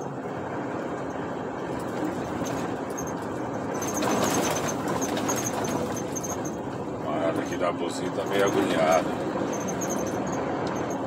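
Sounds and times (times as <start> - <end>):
truck engine and road noise: 0.0 - 11.0
short high squeaks: 2.0 - 6.6, 8.2 - 11.0.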